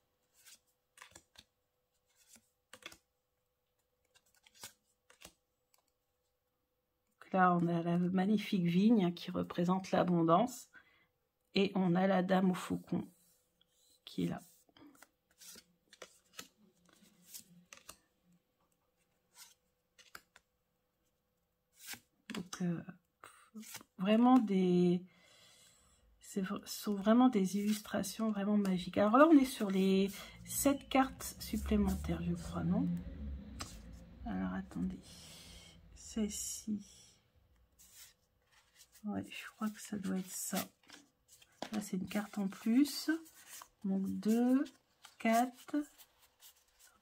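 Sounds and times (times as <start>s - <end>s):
cards tapping and sliding: 0.3s - 1.5s, 2.1s - 3.0s, 14.9s - 18.0s, 19.3s - 20.4s.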